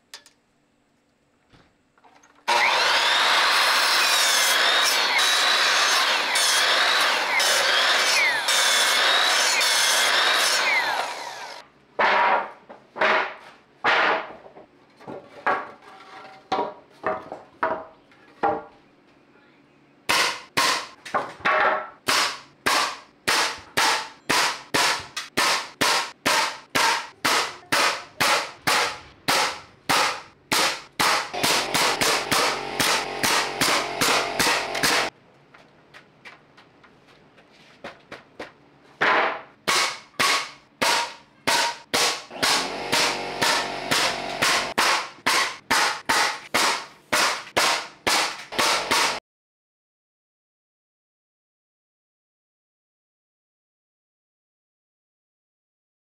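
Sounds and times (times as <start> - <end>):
miter saw cutting wood: 2.5 - 11.6, 31.0 - 35.1, 42.3 - 44.8
nail gun shots: 20.1 - 21.0, 22.1 - 35.1, 39.7 - 49.2.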